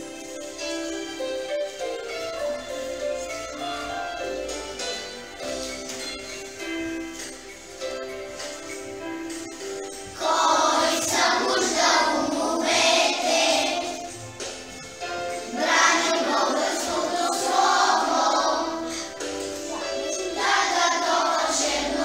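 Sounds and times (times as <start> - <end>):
instrumental backing track: 0.0 - 22.0
children singing: 9.9 - 22.0.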